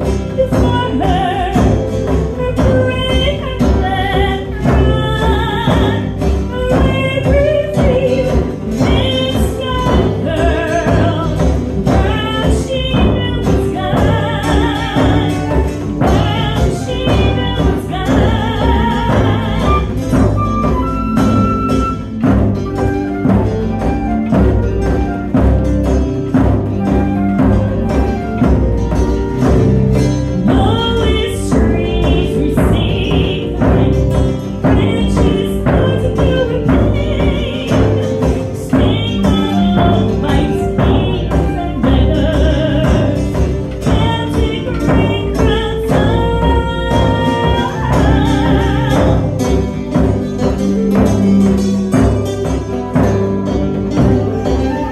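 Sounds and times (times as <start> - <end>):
acoustic guitar strummed: 0.0 - 54.9
percussion beat: 0.0 - 54.9
woman singing: 0.0 - 54.9
wind instrument melody: 19.3 - 31.2, 47.6 - 54.9.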